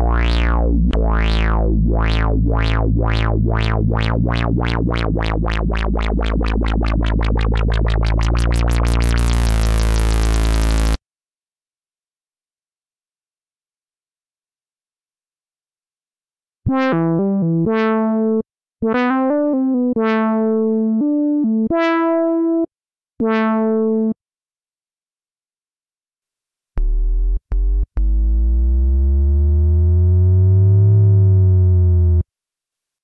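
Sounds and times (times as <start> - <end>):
synthesizer deep bass notes: 0.0 - 11.0, 26.8 - 32.2
synthesizer lead notes: 0.0 - 11.0, 16.7 - 24.2, 26.8 - 32.2.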